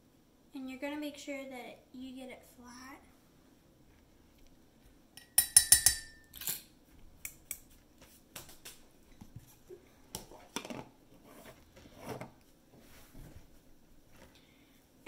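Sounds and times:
spoon rapping ceramic ramekin: 0:05.2 - 0:06.3.

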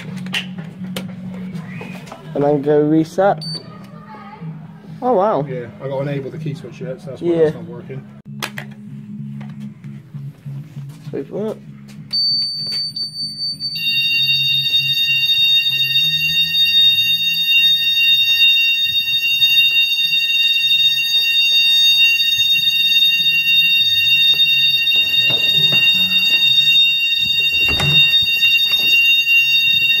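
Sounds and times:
fire alarm continuous high-pitched tone: 0:12.1 - 0:30.0.

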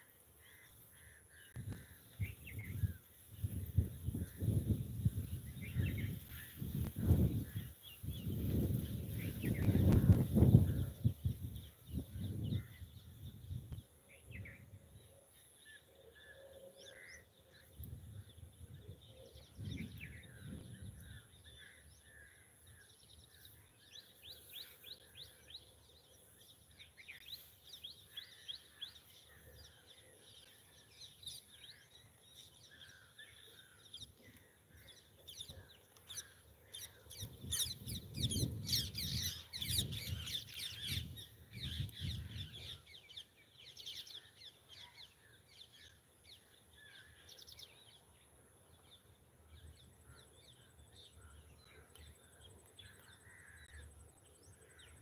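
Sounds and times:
wild birds chirping: 0:00.0 - 0:55.0.

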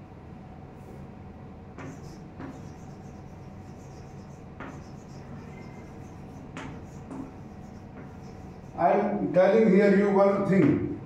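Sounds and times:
low background hum: 0:00.0 - 0:11.0
chalk writing on chalkboard: 0:01.8 - 0:09.2.

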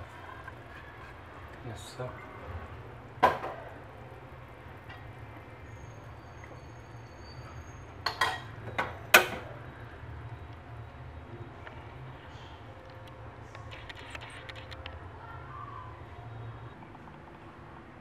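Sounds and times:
ladle clinking against pot: 0:08.0 - 0:09.4.

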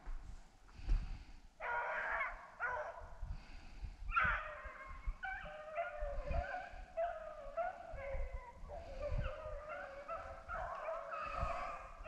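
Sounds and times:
hounds baying: 0:01.6 - 0:03.2, 0:04.1 - 0:12.0.

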